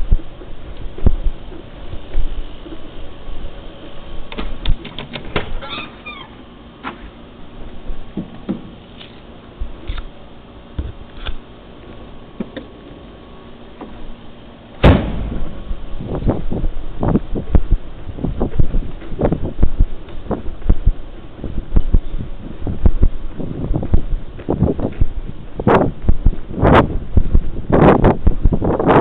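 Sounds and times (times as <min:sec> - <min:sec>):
car trunk slamming: 0:14.8 - 0:15.6.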